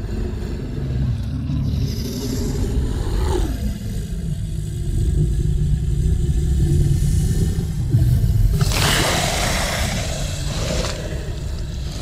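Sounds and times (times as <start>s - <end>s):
deep continuous rumble: 0.0s - 12.0s
falling glide: 6.5s - 12.0s
creature hiss: 8.5s - 12.0s.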